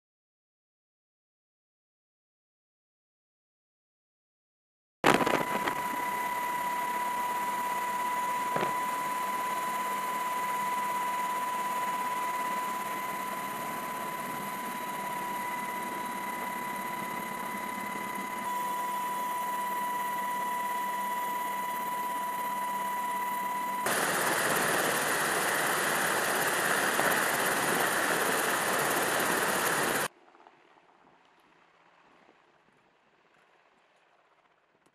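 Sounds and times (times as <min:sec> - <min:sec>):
helicopter cabin rushing drone: 0:05.1 - 0:30.1
high-pitched whine: 0:05.1 - 0:30.1.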